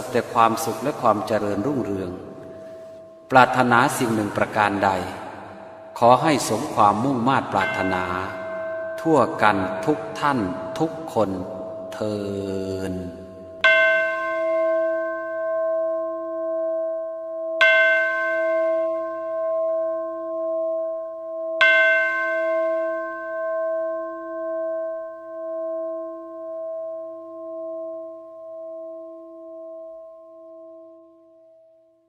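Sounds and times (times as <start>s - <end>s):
metal bowl bell ringing: 5.3s - 12.1s, 13.2s - 31.9s.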